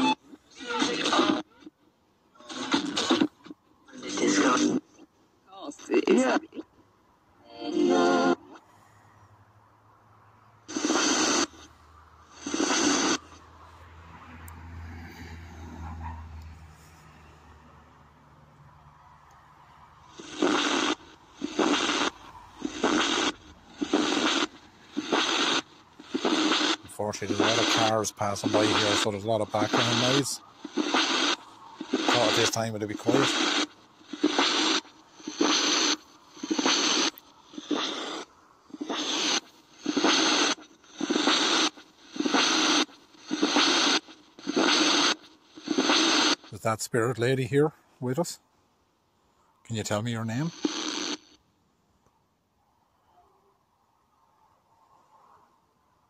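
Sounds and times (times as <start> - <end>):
radio static bursts: 0.0 - 1.8, 2.4 - 5.1, 10.6 - 13.7, 20.0 - 48.4, 49.7 - 51.4
car passing: 8.6 - 10.7, 11.6 - 12.4, 13.2 - 20.3, 20.9 - 25.1, 26.8 - 34.1.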